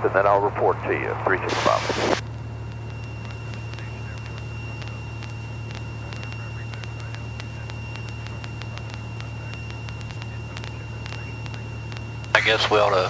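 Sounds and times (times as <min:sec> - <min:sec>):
aircraft engine and propeller drone: 0:00.0 - 0:13.0
faint clicks: 0:02.4 - 0:12.4.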